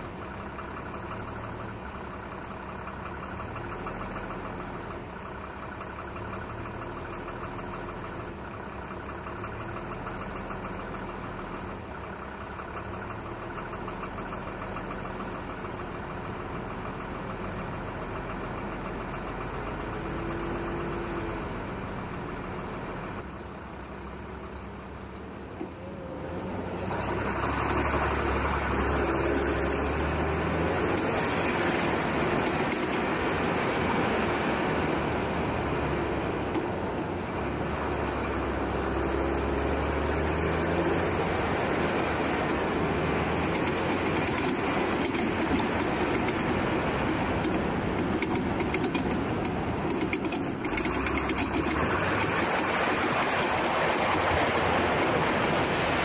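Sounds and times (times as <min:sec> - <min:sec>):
truck engine under load: 0:00.0 - 0:56.0
tyres on gravel: 0:41.1 - 0:56.0.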